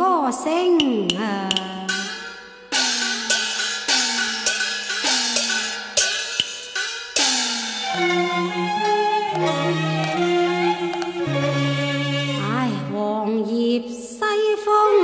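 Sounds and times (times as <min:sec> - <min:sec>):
gong and cymbals struck: 0:01.5 - 0:09.7
bowed strings: 0:07.3 - 0:13.5.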